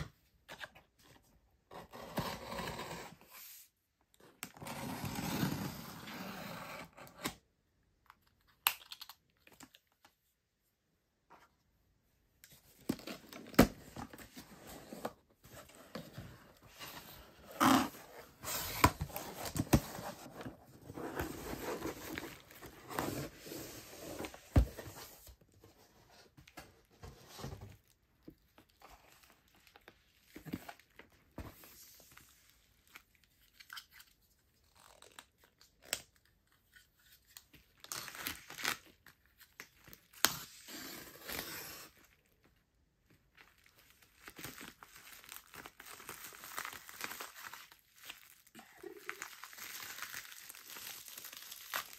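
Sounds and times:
plastic wrap crinkling and tearing: 0:43.3 - 0:51.9.

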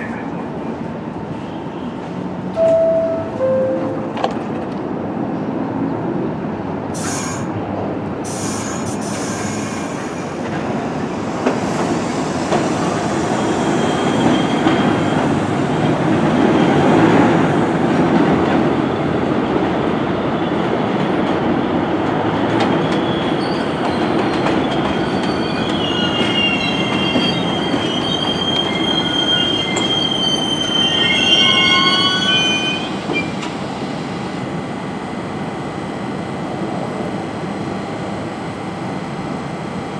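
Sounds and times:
subway train rumbling on rails: 0:00.0 - 0:39.9
wheels squealing: 0:24.9 - 0:33.4.

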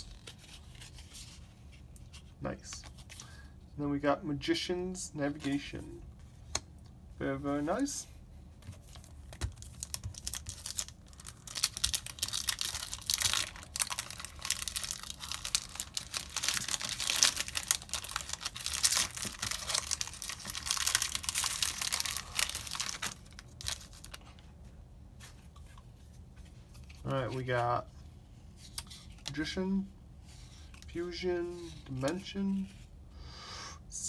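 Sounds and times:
foil wrapper tearing and crinkling: 0:09.5 - 0:24.2.

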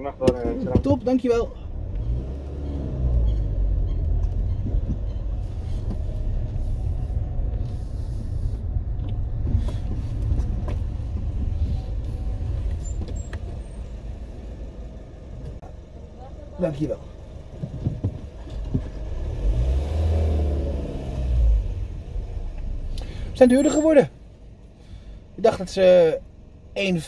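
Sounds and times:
car engine and tyre rumble: 0:00.0 - 0:27.0.

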